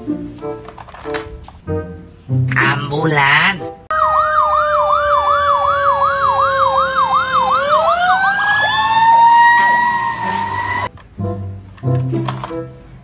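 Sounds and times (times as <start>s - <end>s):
siren steady wail: 3.9s - 10.9s
siren yelp: 3.9s - 10.9s.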